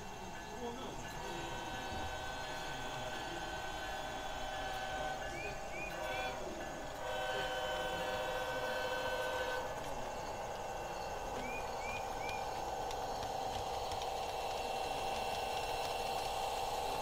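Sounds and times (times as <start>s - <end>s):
model locomotive diesel engine sound: 0.0s - 17.0s.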